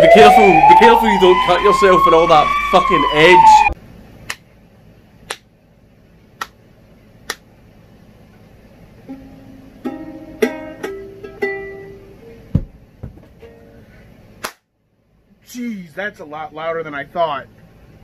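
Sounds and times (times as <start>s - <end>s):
ukulele plucked notes: 9.0s - 12.5s, 13.4s - 13.8s.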